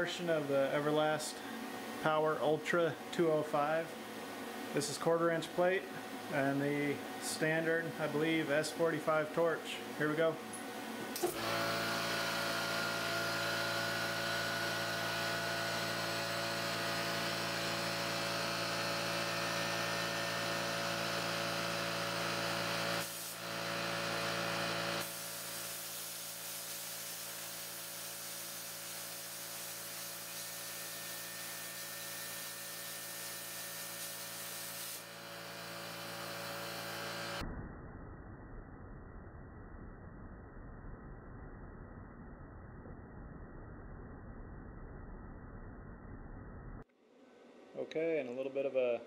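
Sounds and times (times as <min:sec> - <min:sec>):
plasma cutter hissing: 0:21.4 - 0:37.4.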